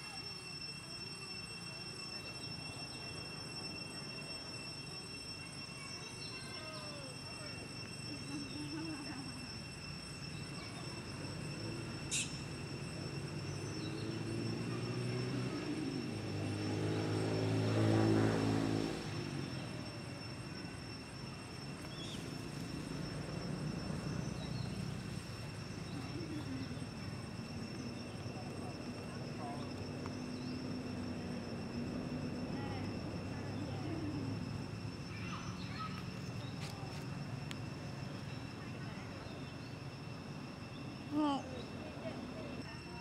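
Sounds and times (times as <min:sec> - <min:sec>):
insect drone: 0:00.0 - 0:43.0
passing engine: 0:11.1 - 0:42.9.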